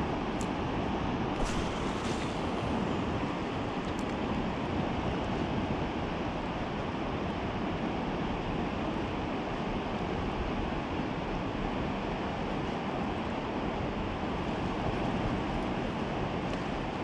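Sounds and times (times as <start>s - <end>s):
river water rushing: 1.3s - 7.6s.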